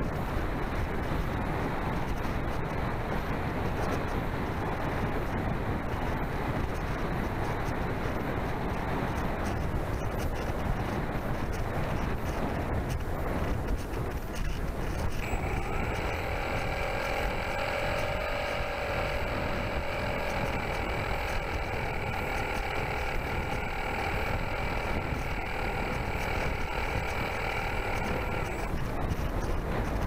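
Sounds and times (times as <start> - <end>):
wind rumble on microphone: 0.0 - 30.0
model aircraft motor whine: 13.7 - 30.0.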